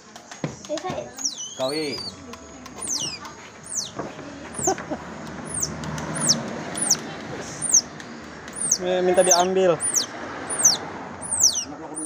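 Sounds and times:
otter pup chirping: 0:01.1 - 0:04.0, 0:04.6 - 0:04.8, 0:05.4 - 0:12.0.

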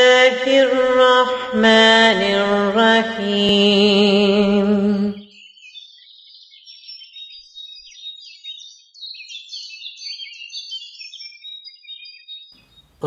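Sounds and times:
songbirds chirping and warbling: 0:05.2 - 0:13.0.

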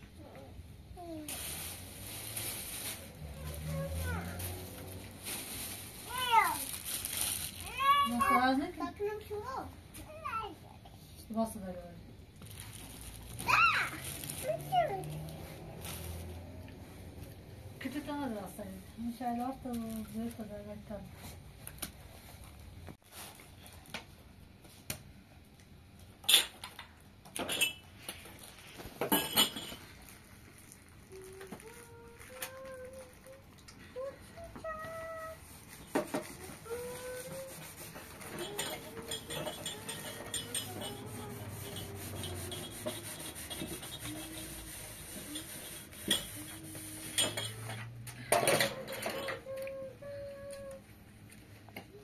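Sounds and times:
metal tray scrubbed in water: 0:36.8 - 0:47.6.

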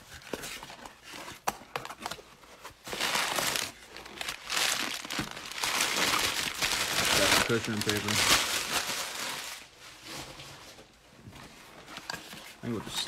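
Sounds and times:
packing paper crinkling: 0:02.8 - 0:09.8.

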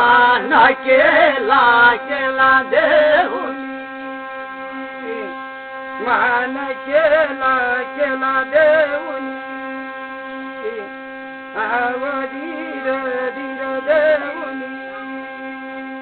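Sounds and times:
man singing: 0:00.0 - 0:03.7, 0:04.8 - 0:05.4, 0:06.0 - 0:09.4, 0:10.6 - 0:15.2
droning hum of rubbed brass plate: 0:00.0 - 0:16.0.

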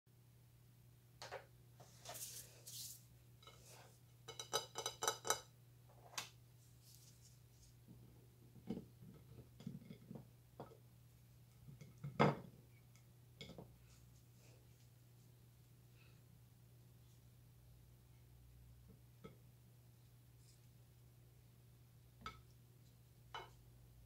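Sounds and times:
objects clattering on a hard plate: 0:04.3 - 0:05.5, 0:08.6 - 0:10.8, 0:11.6 - 0:12.5.

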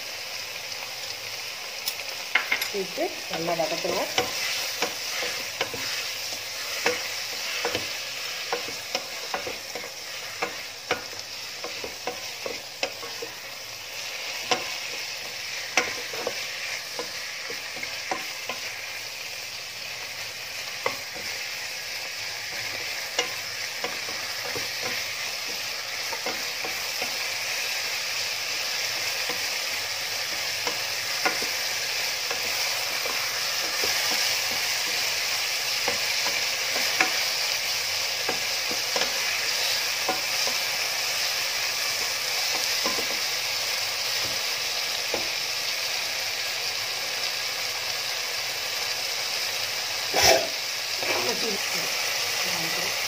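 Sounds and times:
chicken sizzling in hot oil: 0:00.0 - 0:53.0
wooden spatula scraping a pot: 0:03.3 - 0:13.4.

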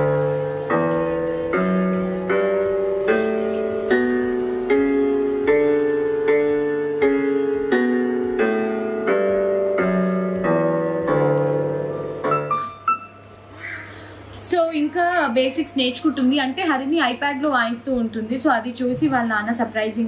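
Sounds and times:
electronic keyboard melody: 0:00.0 - 0:13.6.

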